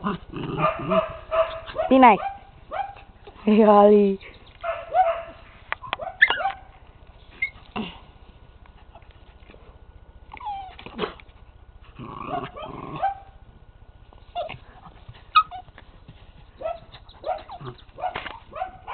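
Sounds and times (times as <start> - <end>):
puppy growling: 0.0 - 2.0, 10.3 - 11.3, 11.9 - 13.3, 16.6 - 18.8
puppy yelping: 0.0 - 3.1, 4.6 - 6.7, 7.4 - 7.7, 10.3 - 11.2, 15.3 - 15.7, 16.6 - 18.9
puppies yipping: 0.6 - 3.1, 4.3 - 7.7, 10.3 - 11.1, 15.2 - 15.7, 16.5 - 18.9.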